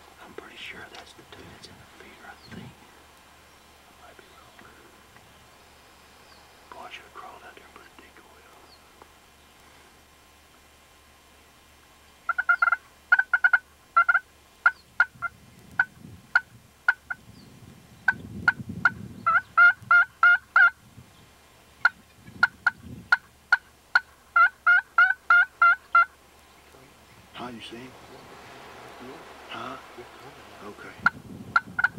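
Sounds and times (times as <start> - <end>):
faint low rustle: 0.0 - 19.9, 25.8 - 31.9
turkey yelping: 12.3 - 15.3, 18.1 - 20.8, 21.8 - 26.2
turkey clucks: 12.3 - 17.2, 18.1 - 20.8, 21.8 - 31.9.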